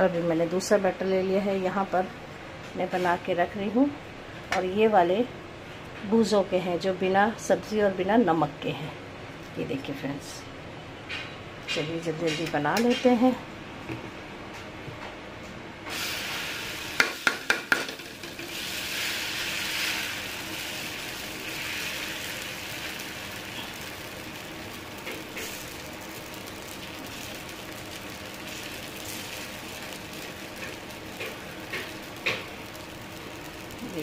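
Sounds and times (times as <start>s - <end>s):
batter sizzling on hot pan: 15.9s - 34.0s.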